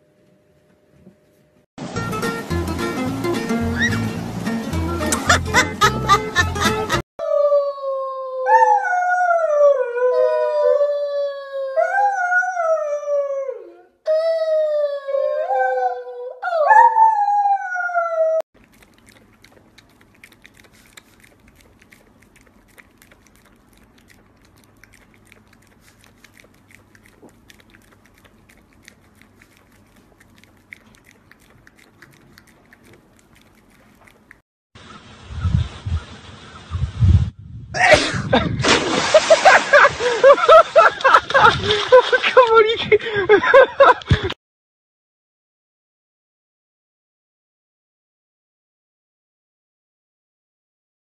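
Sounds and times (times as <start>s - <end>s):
dog howling: 7.2s - 18.4s
small dog licking glass: 18.6s - 34.4s.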